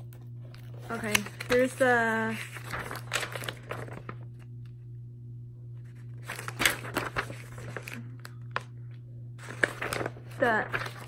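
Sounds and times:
steady low hum: 0.0s - 11.0s
paper sheet rustling and crinkling: 0.4s - 4.5s, 5.8s - 8.8s, 9.4s - 11.0s.

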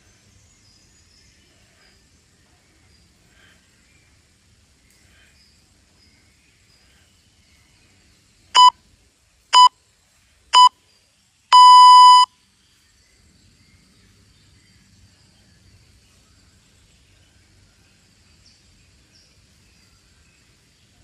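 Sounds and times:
timer beeps: 11.5s - 12.3s.

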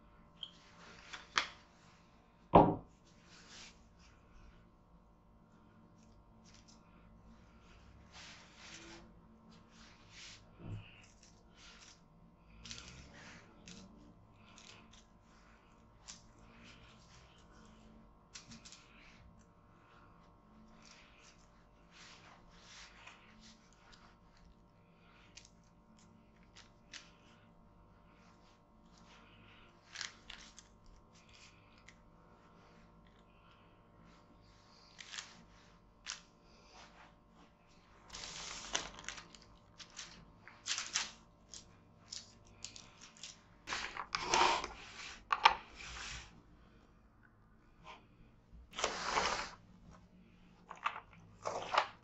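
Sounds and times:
parchment paper rustling: 5.6s - 46.3s
cling film crinkling: 38.1s - 43.4s.

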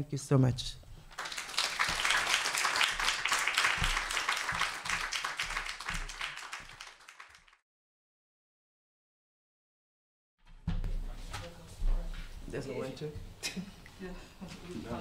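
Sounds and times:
audience applauding: 1.1s - 7.6s.

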